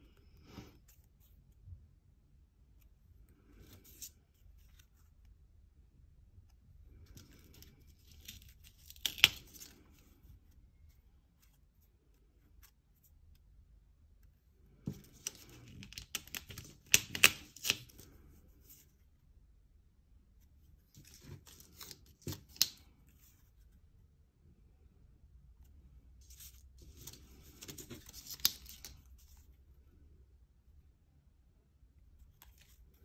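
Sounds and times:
paper rustling: 20.9 - 23.6, 26.2 - 29.5.

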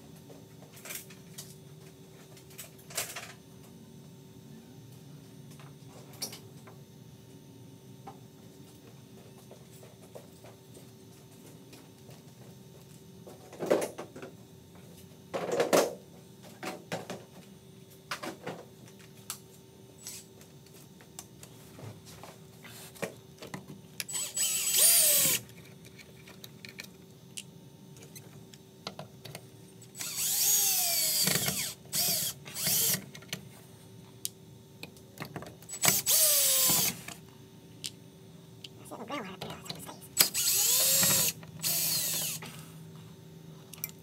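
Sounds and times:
cordless drill motor whine: 24.0 - 25.4, 29.9 - 33.0, 35.7 - 37.1, 40.2 - 42.5.

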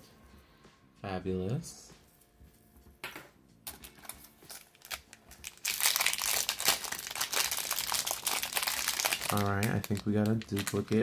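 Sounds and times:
plastic packet crinkling: 3.7 - 11.0.

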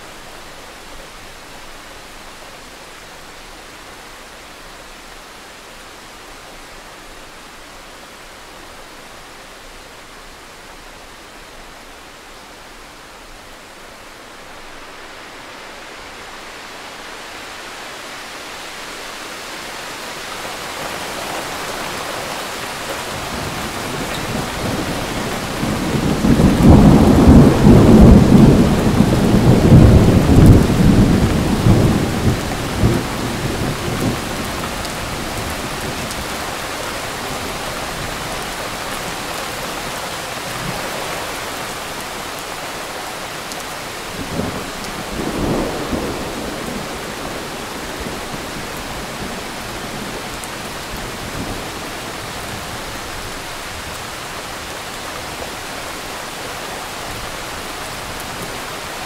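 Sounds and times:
steady rain: 0.0 - 59.0
thunder rumbling: 21.0 - 38.9.

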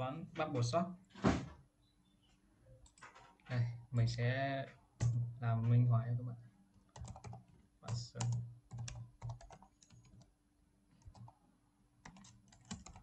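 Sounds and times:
typing on computer keyboard: 6.9 - 10.3, 11.0 - 11.4, 12.0 - 13.0.

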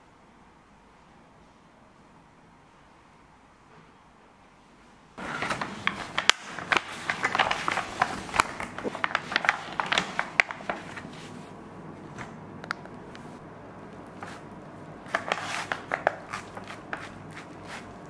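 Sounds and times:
baking paper crinkling: 5.2 - 12.2, 13.2 - 18.0.

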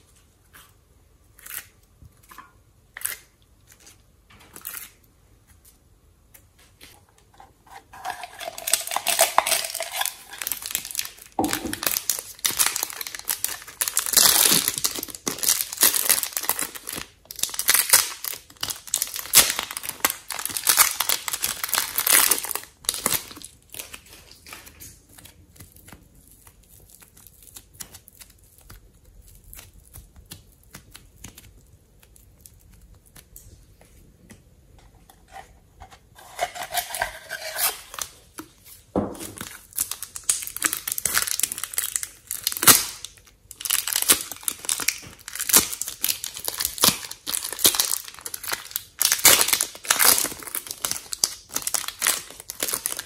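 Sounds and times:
plastic wrapper crinkling and tearing: 8.0 - 33.5, 36.3 - 53.0.

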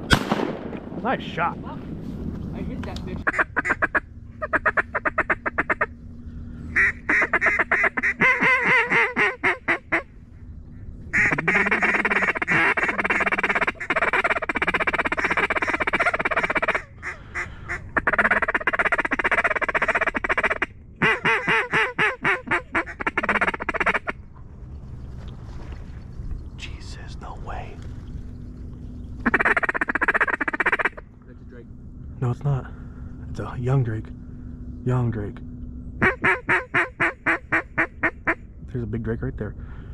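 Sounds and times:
duck call quacking: 3.2 - 5.9, 6.7 - 10.1, 11.1 - 24.2, 29.2 - 31.0, 36.0 - 38.4.

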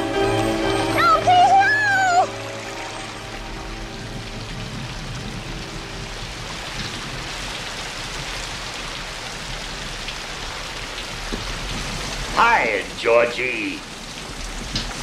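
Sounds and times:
steady rain: 0.0 - 15.0
water running into storm drain: 0.0 - 15.0.

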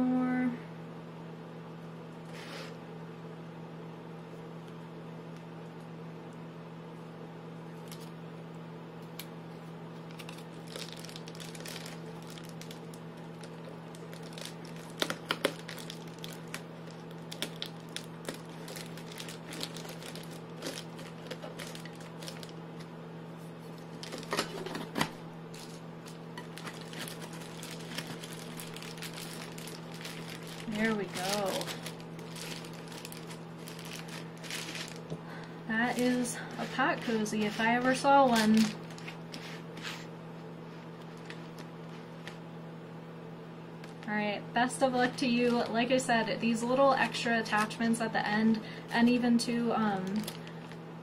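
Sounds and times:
steady low hum: 0.0 - 51.0
foil crinkling and crackling: 9.6 - 40.1, 40.7 - 42.4, 49.9 - 50.8.

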